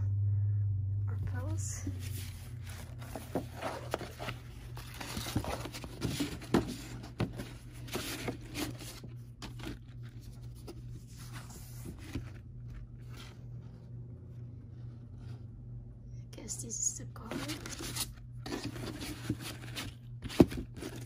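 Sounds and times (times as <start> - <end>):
paper rustling and crinkling: 1.9 - 13.9, 17.2 - 21.0.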